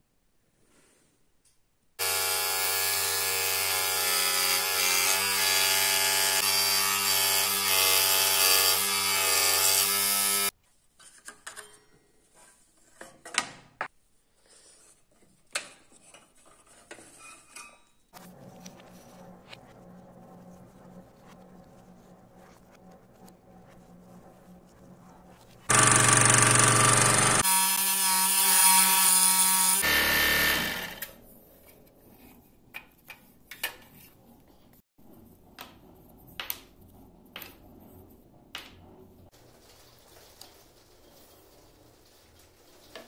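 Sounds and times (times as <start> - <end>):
scroll saw cutting wood: 2.0 - 10.5, 25.6 - 31.2.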